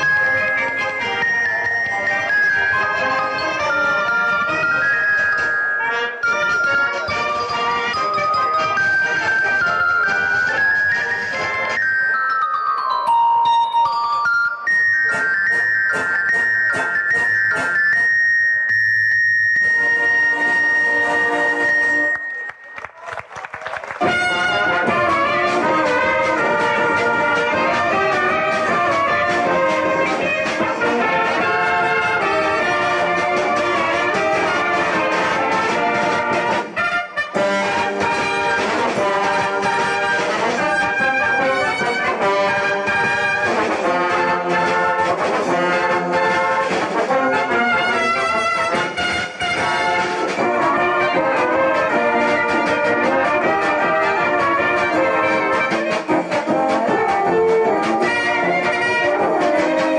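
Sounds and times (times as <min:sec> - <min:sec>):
brass band playing: 0:00.0 - 0:18.6, 0:19.5 - 0:22.5, 0:23.9 - 0:59.9.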